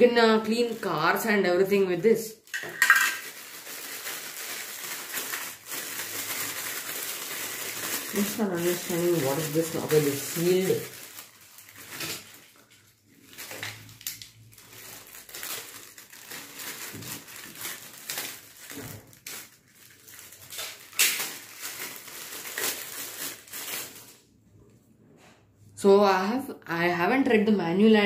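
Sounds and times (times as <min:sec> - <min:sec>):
plastic bag crinkling: 0:00.0 - 0:24.3.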